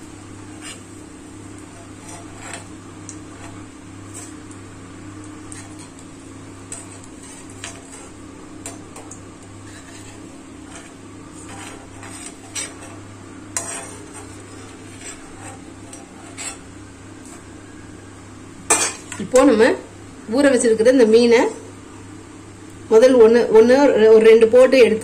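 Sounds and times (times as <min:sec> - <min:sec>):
leaves sizzling in hot oil: 0:00.0 - 0:17.9
metal spoon scraping a pan: 0:00.4 - 0:01.0, 0:01.6 - 0:04.6, 0:05.2 - 0:17.5.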